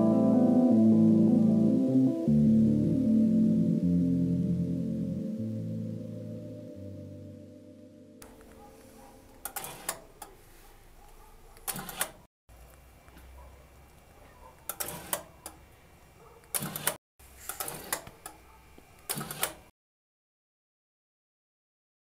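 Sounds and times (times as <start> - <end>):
motor driving gear and bolts: 9.3 - 10.4, 11.6 - 12.2, 14.6 - 15.6, 16.4 - 18.4, 19.0 - 19.7.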